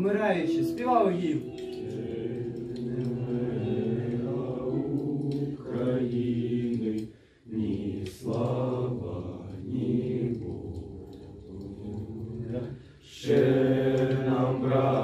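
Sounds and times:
men singing together: 1.8s - 15.0s.

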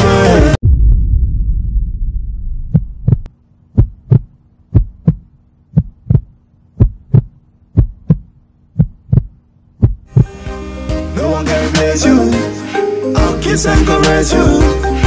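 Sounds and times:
low rumble: 0.6s - 10.2s
heartbeat thumps: 0.6s - 10.4s
faint steady hum: 2.3s - 10.2s.

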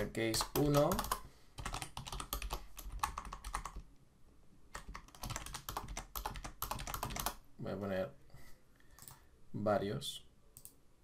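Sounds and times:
computer keyboard typing: 0.2s - 3.9s, 4.7s - 7.4s.

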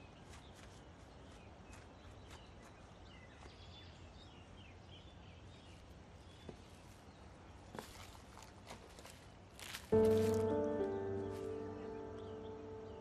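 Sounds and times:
small birds chirping: 0.0s - 13.0s
soft footsteps: 7.7s - 11.9s.

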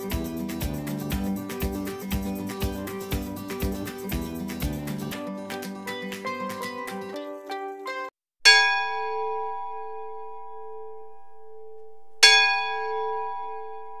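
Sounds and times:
plucked guitar music: 0.0s - 14.0s
bell ringing: 8.5s - 14.0s.

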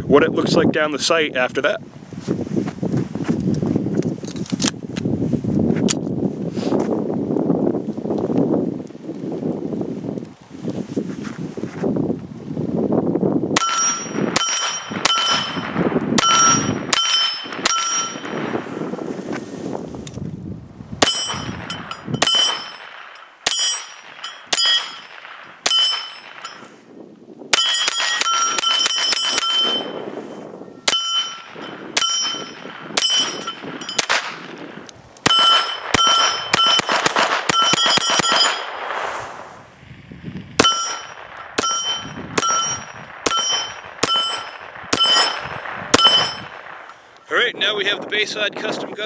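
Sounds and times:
short metallic ring: 13.6s - 18.4s, 21.0s - 26.8s, 27.6s - 34.2s, 35.3s - 38.7s, 40.6s - 46.6s
pistol shots: 13.6s - 18.6s, 21.0s - 26.6s, 30.9s - 38.9s, 40.6s - 47.0s.

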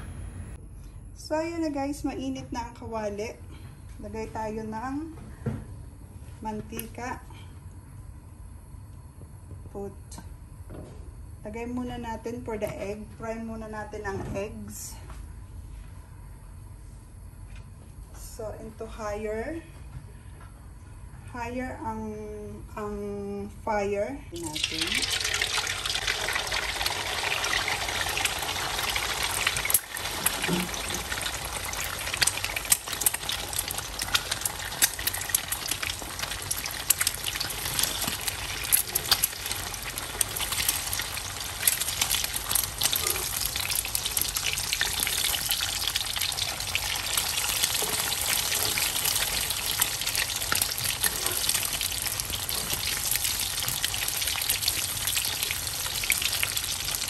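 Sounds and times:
eggs sizzling in hot oil: 24.4s - 57.0s.

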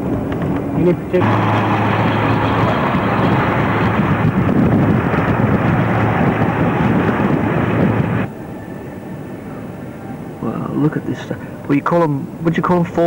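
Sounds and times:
car road noise: 0.0s - 8.3s
low engine hum: 0.0s - 8.3s
wind on microphone: 0.0s - 10.4s.

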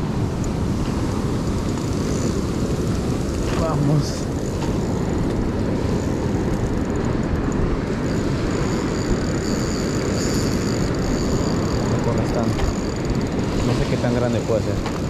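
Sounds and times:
wind: 0.0s - 15.0s.

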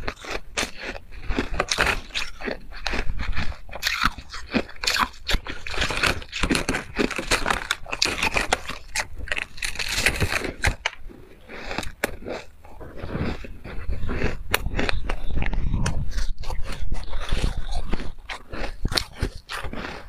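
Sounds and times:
ice crunching and crackling: 0.0s - 20.0s.

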